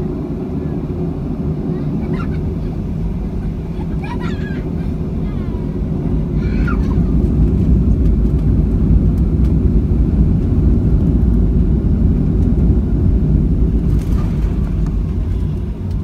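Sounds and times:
airplane cabin engine rumble: 0:00.0 - 0:16.0.

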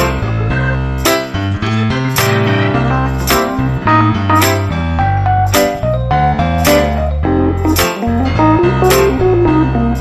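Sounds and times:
melody over a steady beat: 0:03.3 - 0:10.0.

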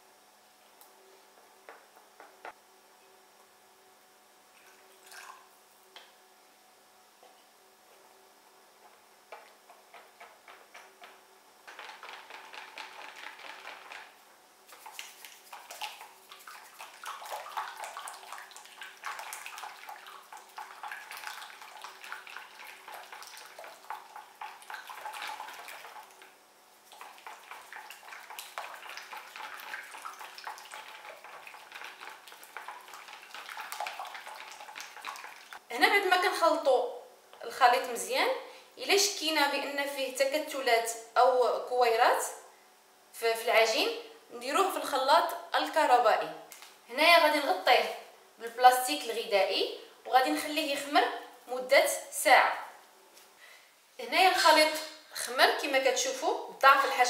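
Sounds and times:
whisk tapping plastic bowl: 0:09.3 - 0:17.9
hand whisk beating batter: 0:09.3 - 0:35.6.

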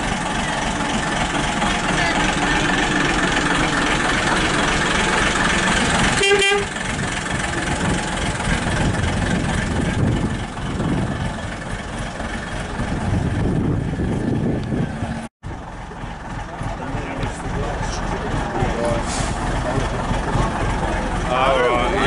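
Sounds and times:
bus engine running: 0:00.0 - 0:22.0
bus horn toot: 0:06.1 - 0:06.9.

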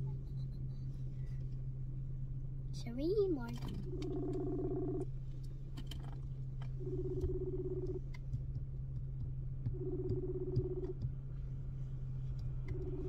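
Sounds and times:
steady low hum: 0:00.0 - 0:13.0
phone ringback tone: 0:03.8 - 0:05.0, 0:06.8 - 0:08.0, 0:09.8 - 0:10.9, 0:12.7 - 0:13.0.

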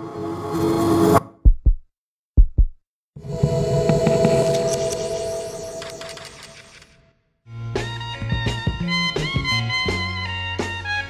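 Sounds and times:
deep bass thumps: 0:01.4 - 0:02.8.

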